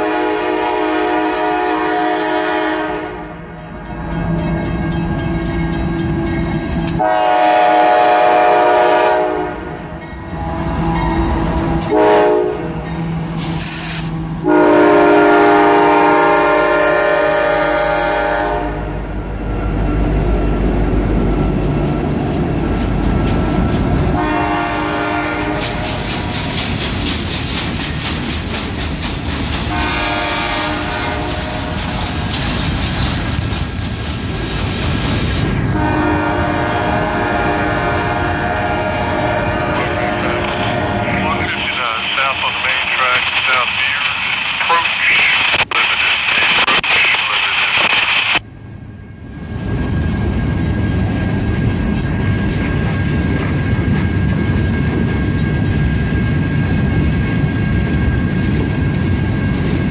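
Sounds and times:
locomotive horn blasts: 0.0s - 3.5s, 7.0s - 9.8s, 11.8s - 12.8s, 14.4s - 19.0s, 24.2s - 25.8s, 29.7s - 31.7s, 35.7s - 41.6s
locomotive engine rumble: 3.6s - 46.1s
train wheels clicking over rail joints: 21.7s - 24.2s, 25.4s - 35.8s, 49.6s - 59.9s.

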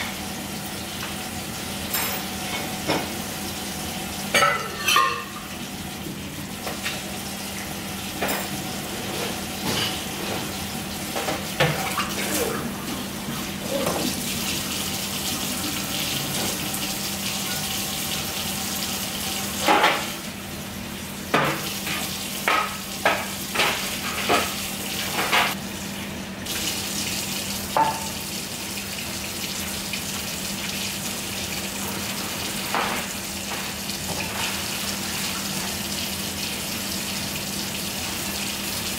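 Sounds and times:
dishes and utensils clattering: 4.3s - 5.5s.

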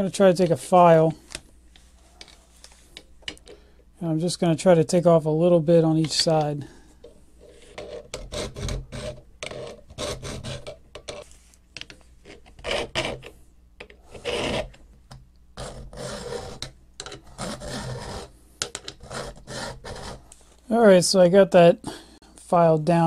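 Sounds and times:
hand file rasping on steel: 14.1s - 14.7s, 15.6s - 16.7s, 17.3s - 18.3s, 18.9s - 20.2s.

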